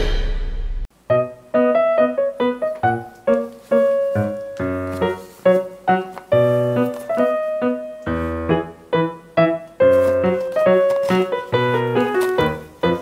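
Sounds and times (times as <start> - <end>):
piano-like melody: 0.0 - 13.0.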